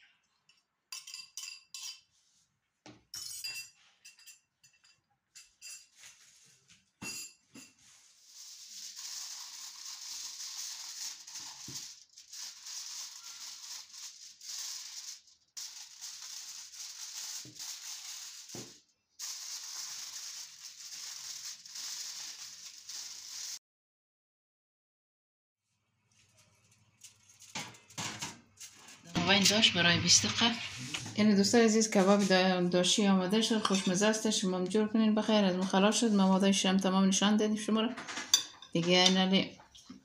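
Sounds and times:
metal spoon clinking on glass: 0:00.5 - 0:02.1, 0:03.1 - 0:05.9, 0:07.0 - 0:07.8, 0:38.3 - 0:39.2
aluminium foil crinkling: 0:07.8 - 0:23.6, 0:26.1 - 0:29.8.

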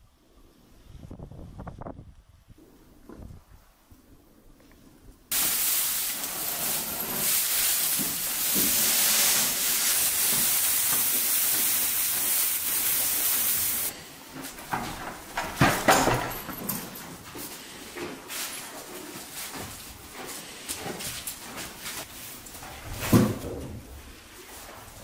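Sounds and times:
dry hay rustling: 0:05.3 - 0:15.4.

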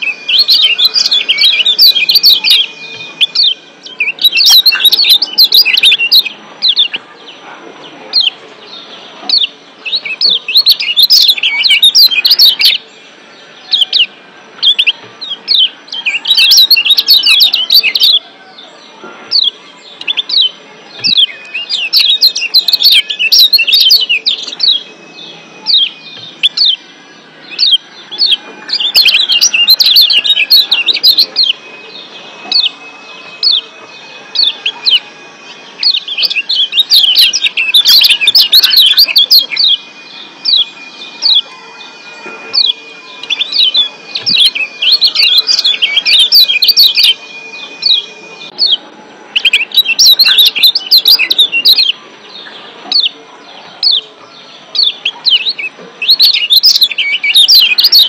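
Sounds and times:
bird chirping sharply: 0:00.0 - 0:07.0, 0:19.3 - 0:58.0.

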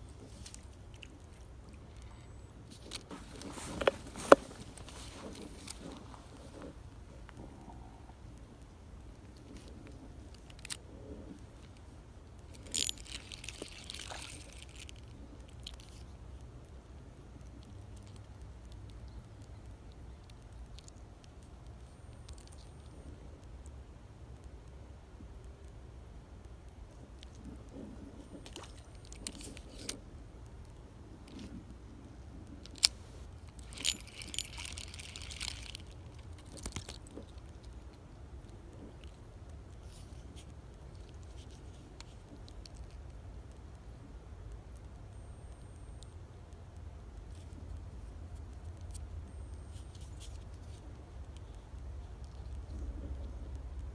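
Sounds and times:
small clicks: 0:00.0 - 0:53.9
rustling scrape: 0:02.0 - 0:06.8.

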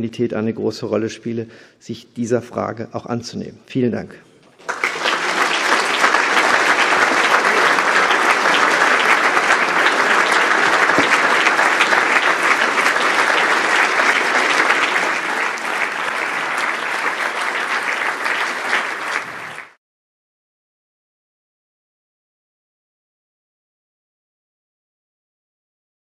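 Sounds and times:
audience applauding: 0:04.5 - 0:19.8.

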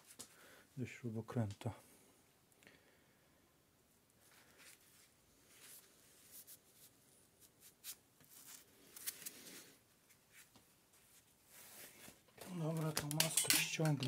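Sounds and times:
screwdriver being handled: 0:12.4 - 0:14.0
small metal parts clicking: 0:12.9 - 0:14.0.

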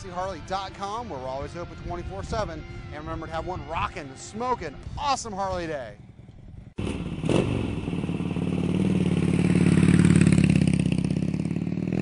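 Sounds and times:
motorcycle engine revving: 0:06.0 - 0:12.0.

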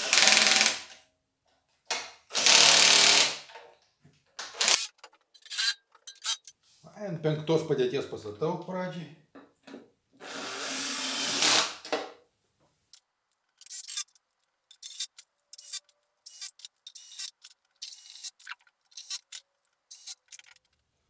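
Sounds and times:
cordless drill driving bolts: 0:00.0 - 0:00.9, 0:02.3 - 0:03.4, 0:04.5 - 0:06.4, 0:10.2 - 0:11.9, 0:14.7 - 0:20.5.

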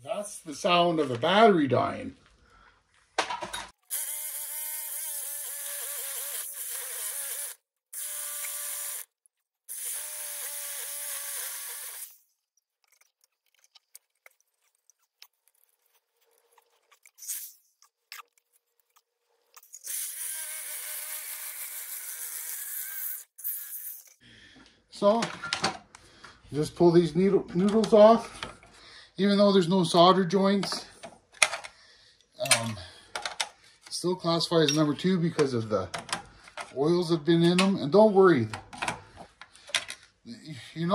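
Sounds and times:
reciprocating saw cutting metal: 0:09.7 - 0:12.2, 0:19.8 - 0:24.2.

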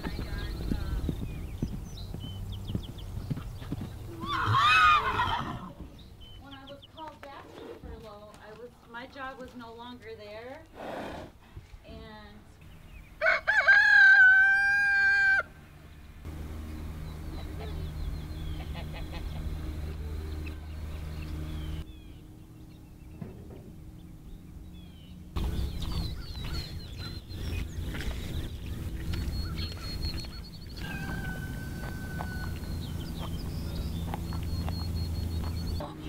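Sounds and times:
low steady rumble: 0:00.0 - 0:07.0, 0:13.9 - 0:36.0
rooster crowing: 0:13.2 - 0:15.6, 0:30.7 - 0:33.2.

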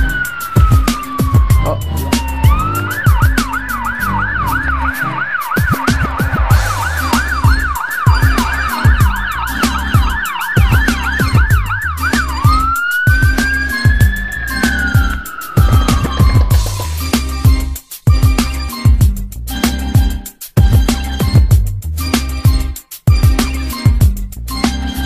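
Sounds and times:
emergency vehicle siren: 0:00.0 - 0:17.7
music with bass beat: 0:00.0 - 0:25.0.

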